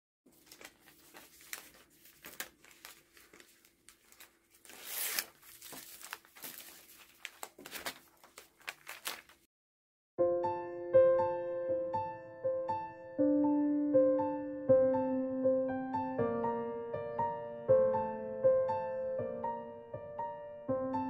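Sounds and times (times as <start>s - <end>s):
plastic bags crinkling: 0.3s - 9.5s.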